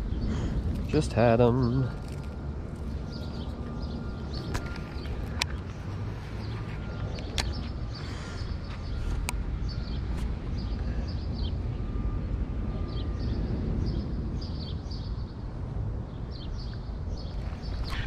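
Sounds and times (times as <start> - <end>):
small birds chirping: 0.0 - 12.1, 16.1 - 18.0
low outdoor rumble: 0.0 - 18.0.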